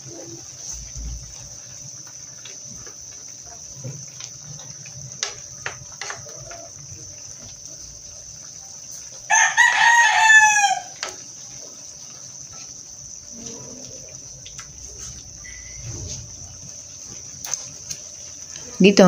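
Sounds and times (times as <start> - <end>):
rooster crowing: 9.2 - 11.2.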